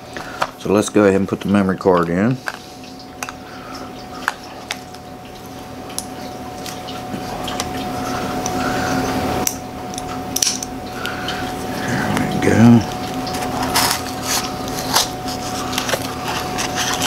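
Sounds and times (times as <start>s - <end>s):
steady low hum: 0.0s - 17.0s
plastic pack clicking and rustling: 13.0s - 17.0s.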